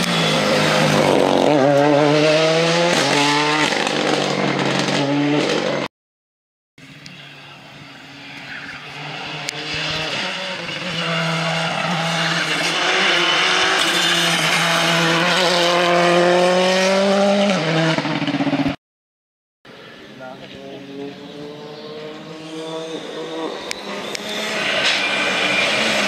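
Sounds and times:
rally car engine at full throttle: 0.0s - 5.9s, 7.0s - 18.8s, 20.4s - 26.0s
faint engine: 19.7s - 26.0s.

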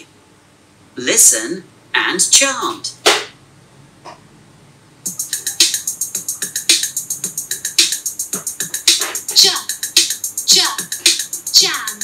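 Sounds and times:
fast percussion beat: 5.1s - 12.0s.

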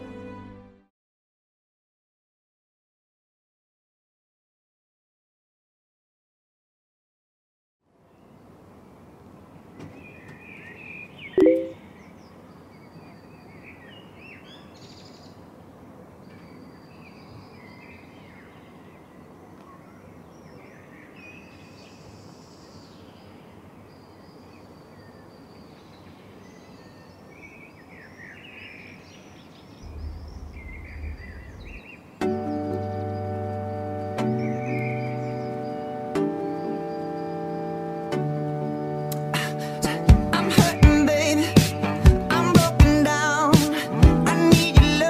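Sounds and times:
music: 0.0s - 0.9s, 32.3s - 45.0s
small birds chirping: 9.7s - 38.0s, 38.6s - 45.0s
loud blip with tone: 11.4s - 11.8s.

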